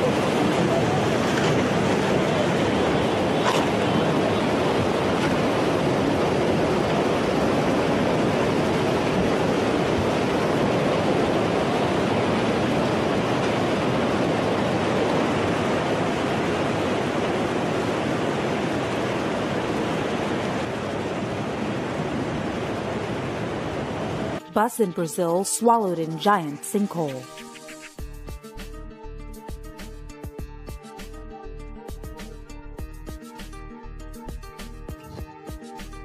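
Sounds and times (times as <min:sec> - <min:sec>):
churning water rushing: 0:00.0 - 0:24.4.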